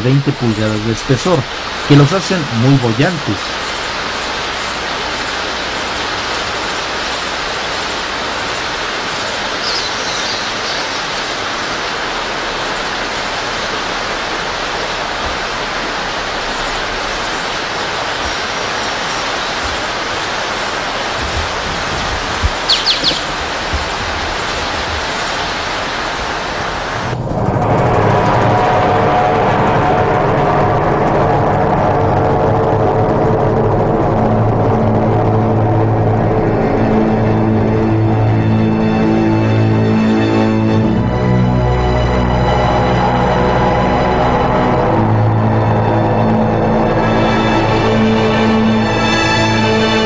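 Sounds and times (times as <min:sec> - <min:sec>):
river water rushing: 0:00.0 - 0:27.2
bird chirps: 0:09.6 - 0:11.5, 0:22.5 - 0:24.0.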